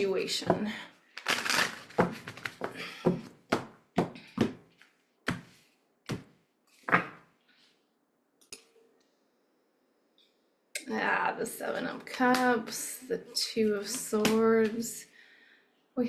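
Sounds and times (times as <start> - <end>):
cards being shuffled: 1.2 - 2.7.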